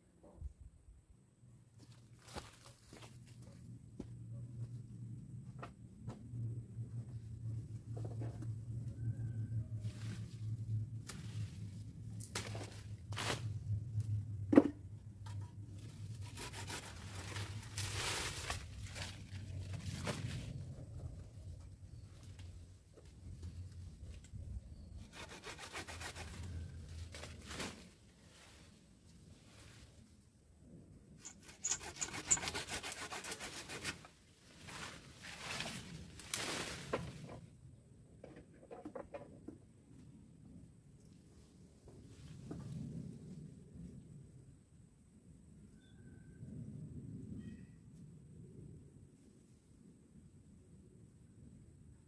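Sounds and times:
leaves and twigs rustling: 1.8 - 3.6, 15.8 - 20.7, 25.1 - 30.2, 32.6 - 37.4
hand saw rasping through branch: 16.2 - 17.6, 25.0 - 26.7, 31.2 - 34.1.

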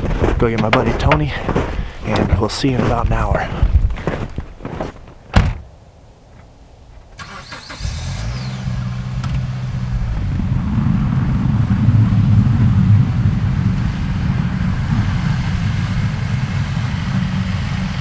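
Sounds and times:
car door shutting: 5.3 - 5.6
car engine starting and running: 7.2 - 18.0.

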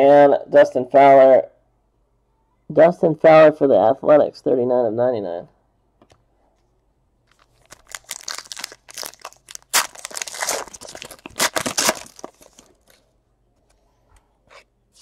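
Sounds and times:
foil wrapper tearing and crinkling: 7.3 - 13.0.

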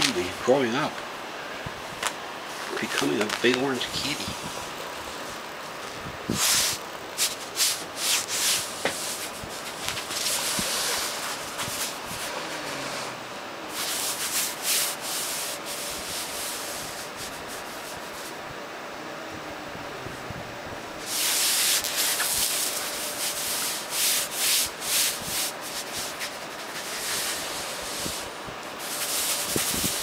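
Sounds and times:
scratching on fabric mattress pad: 6.3 - 18.3, 21.0 - 30.0.

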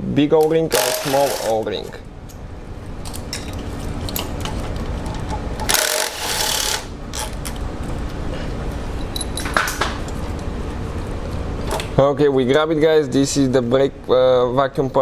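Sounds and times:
power ratchet running: 0.7 - 1.7, 5.6 - 7.4.

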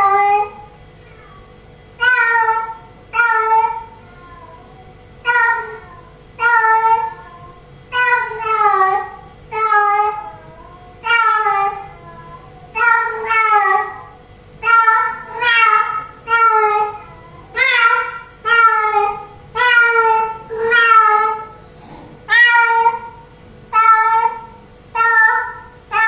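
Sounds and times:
cat meowing loudly: 17.6 - 21.5.

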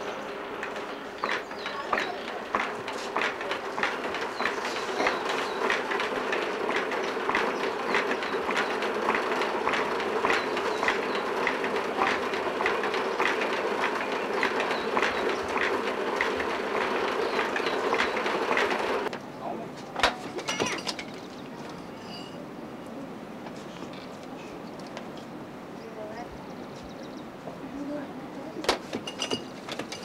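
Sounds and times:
spinning wheel clacking: 0.0 - 19.1
spinning wheel whirring: 0.0 - 19.1.

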